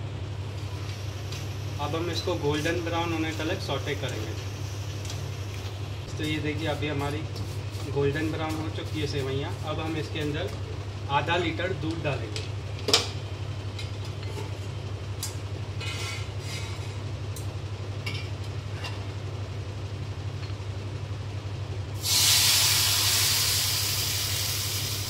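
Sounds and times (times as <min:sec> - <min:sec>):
low steady hum: 0:00.0 - 0:24.5
milk sizzling in hot pan: 0:22.0 - 0:25.0.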